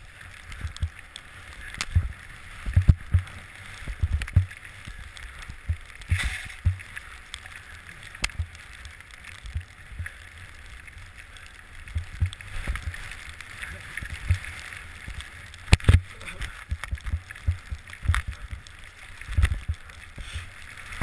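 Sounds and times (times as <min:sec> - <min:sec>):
low thumps and knocks: 0:01.8 - 0:04.6, 0:05.5 - 0:06.9, 0:15.7 - 0:18.6
skis hissing through powder snow: 0:20.2 - 0:20.9.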